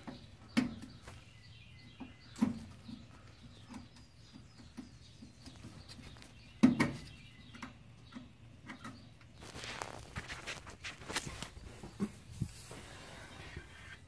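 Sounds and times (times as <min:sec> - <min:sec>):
rustling: 0:09.4 - 0:14.0.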